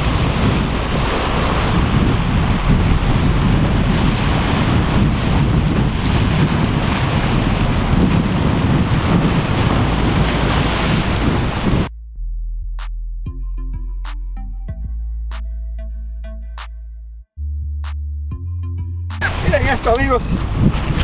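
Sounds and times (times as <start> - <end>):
surf breaking over rocks: 0.0 - 11.9, 19.2 - 21.0
wind buffeting microphone: 0.0 - 11.9, 19.2 - 21.0.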